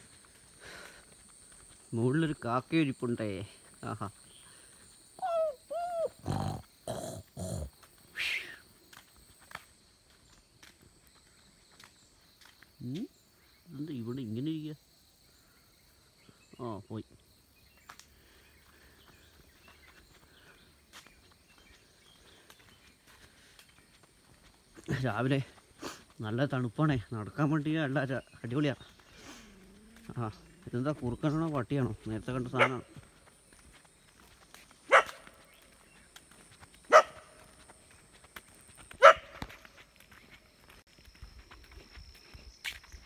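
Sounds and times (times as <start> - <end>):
dog barking: 32.6 - 32.9, 34.9 - 35.3, 36.9 - 37.3, 39.0 - 39.4.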